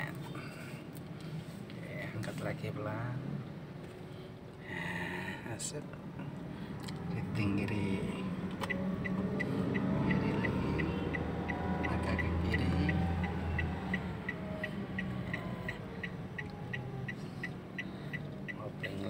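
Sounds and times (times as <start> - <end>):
car engine running: 6.0 - 19.0
turn signal ticking: 6.3 - 19.0.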